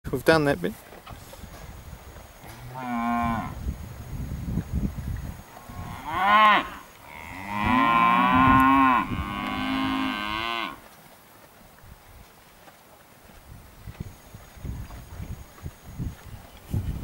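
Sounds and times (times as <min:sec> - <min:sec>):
calves mooing: 0:02.4 - 0:03.6, 0:05.6 - 0:10.8.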